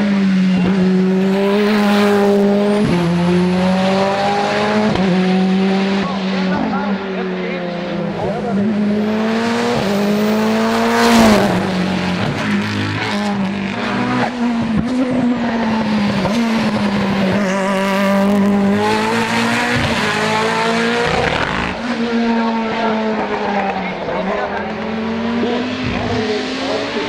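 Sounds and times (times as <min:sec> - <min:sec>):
race car engines revving: 0:00.0 - 0:27.0.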